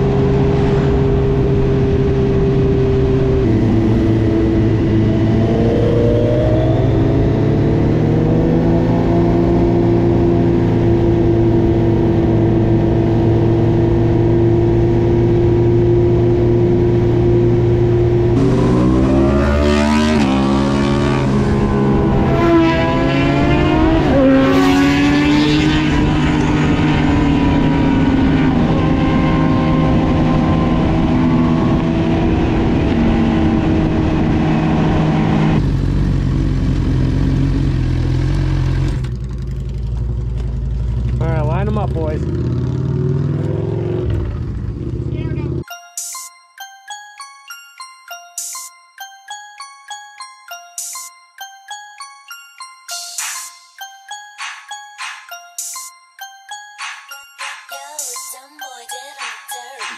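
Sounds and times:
car engine revving: 0:00.0 - 0:45.6.

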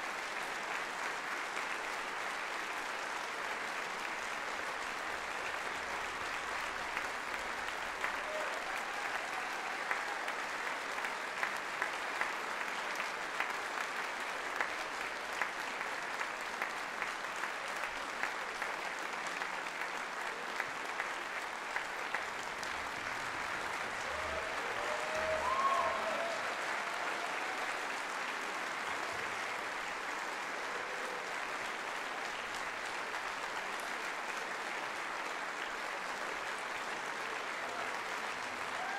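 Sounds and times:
audience applauding: 0:00.0 - 0:38.9.

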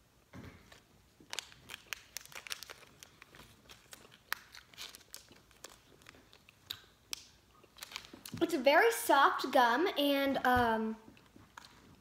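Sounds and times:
candy wrapper crinkling: 0:00.7 - 0:08.4.

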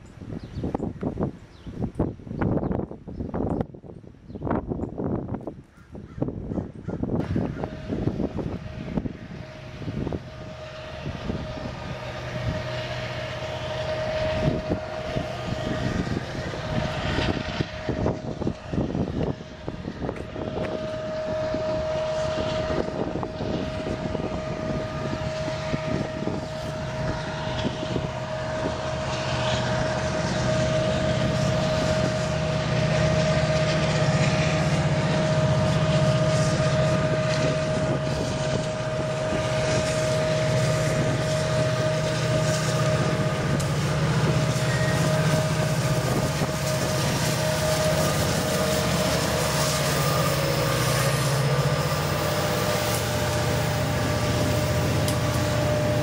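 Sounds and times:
diesel locomotive engine rumble: 0:00.0 - 0:56.0
steady high whine: 0:07.1 - 0:56.0.

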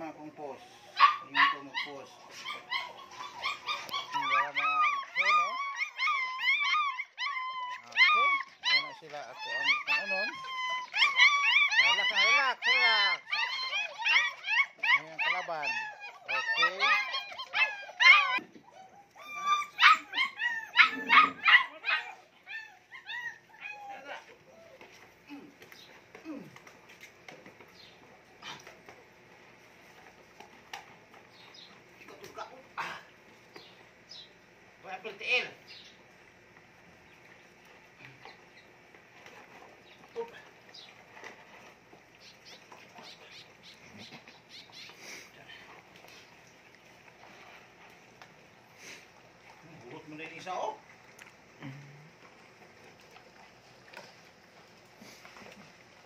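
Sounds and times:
puppies whining and yelping: 0:00.4 - 0:31.9, 0:37.6 - 0:50.7.

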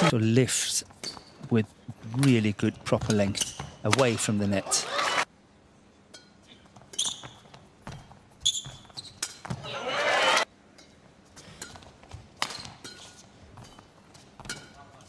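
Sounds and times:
court shoes squeaking: 0:00.8 - 0:05.2, 0:06.1 - 0:15.0
crowd noise: 0:09.6 - 0:10.4.

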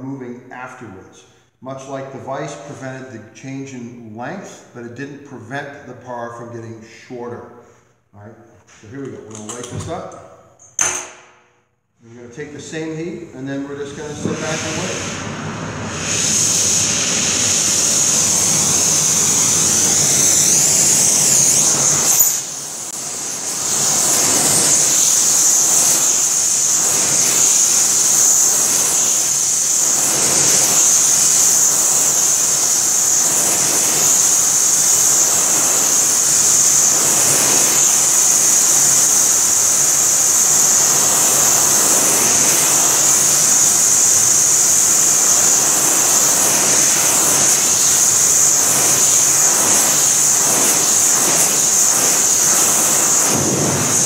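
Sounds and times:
torch burning with loud hiss: 0:12.2 - 0:54.0.

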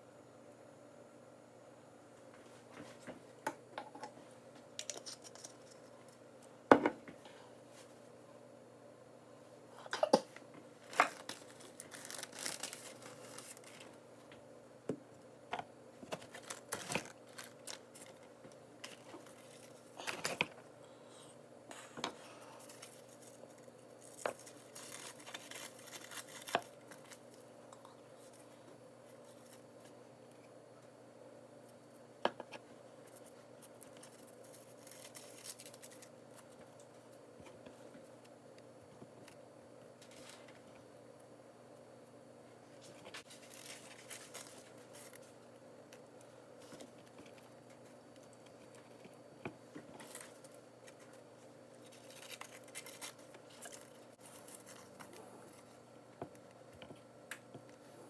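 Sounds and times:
crinkling of brittle sheets: 0:10.8 - 0:14.0, 0:16.0 - 0:20.6, 0:22.6 - 0:27.4, 0:33.0 - 0:38.2, 0:40.0 - 0:40.7, 0:42.8 - 0:57.0.

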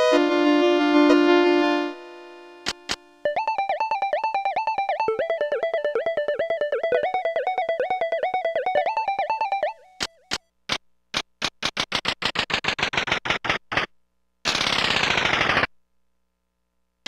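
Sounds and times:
keyboard plucked notes: 0:00.0 - 0:10.2.

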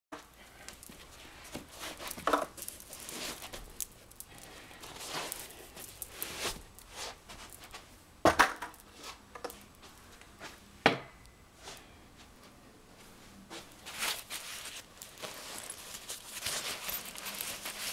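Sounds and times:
soft rustling: 0:00.2 - 0:08.0, 0:11.6 - 0:17.9.

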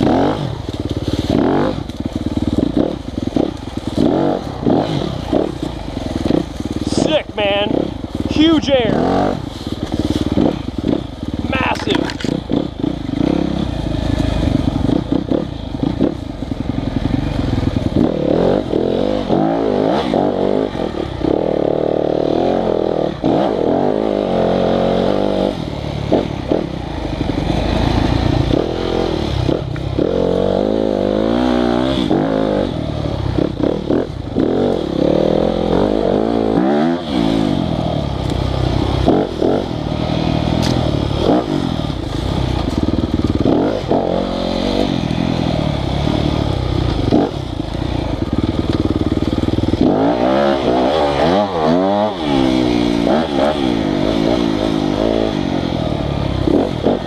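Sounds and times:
motorcycle engine revving: 0:00.0 - 0:57.0
bike knocks and clatter: 0:11.7 - 0:12.6, 0:40.6 - 0:41.4.

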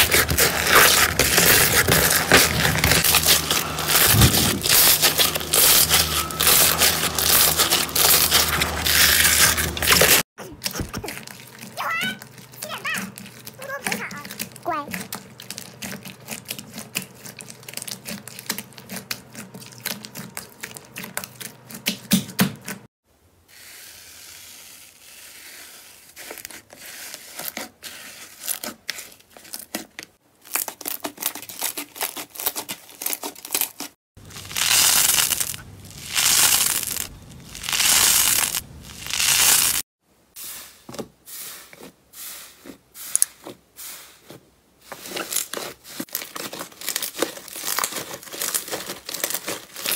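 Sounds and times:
slime squishing: 0:00.0 - 0:22.2, 0:30.5 - 0:39.8, 0:44.9 - 0:49.9
slime crackling and popping: 0:34.2 - 0:39.8, 0:45.3 - 0:49.9.

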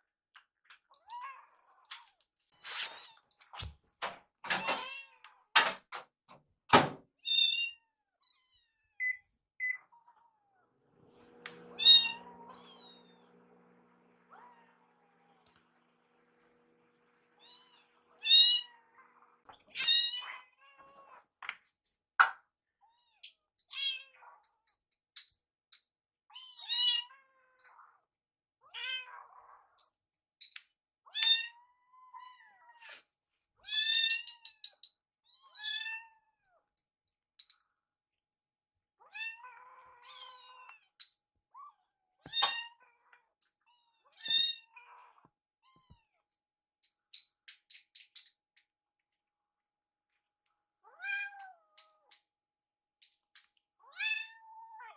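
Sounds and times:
kittens meowing: 0:11.6 - 0:13.4, 0:14.2 - 0:15.6, 0:17.4 - 0:21.3.

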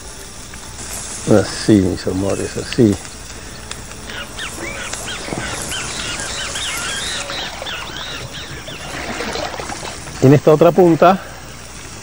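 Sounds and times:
steady faint hiss: 0:00.0 - 0:12.0
small birds chirping: 0:00.5 - 0:12.0.

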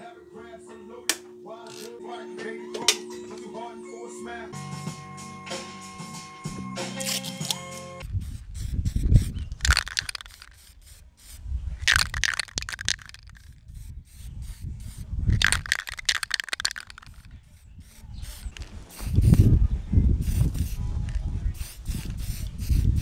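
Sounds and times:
spray can hissing: 0:07.1 - 0:19.6, 0:20.2 - 0:23.0.

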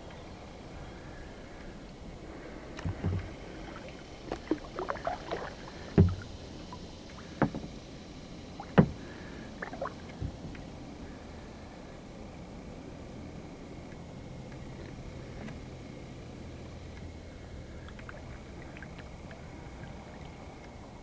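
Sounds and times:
paddle strokes and splashing: 0:02.3 - 0:11.2, 0:17.7 - 0:21.0
paddle knocking on kayak hull: 0:02.8 - 0:03.4, 0:04.3 - 0:06.4, 0:07.4 - 0:07.8, 0:08.6 - 0:09.2, 0:10.2 - 0:10.6.

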